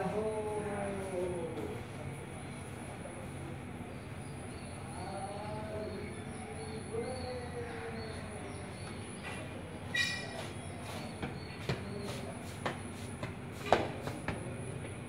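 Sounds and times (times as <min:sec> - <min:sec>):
high squeal: 0:09.9 - 0:10.4.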